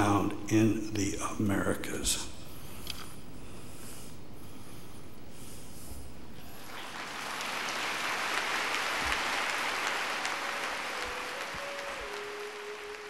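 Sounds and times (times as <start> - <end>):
audience applauding: 6.6 - 13.0.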